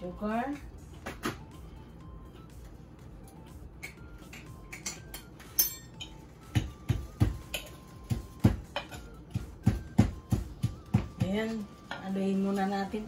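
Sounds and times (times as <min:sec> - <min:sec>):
spoon clinking on glass jar: 0:04.8 - 0:06.2
wooden pestle pounding in mortar: 0:06.5 - 0:11.6.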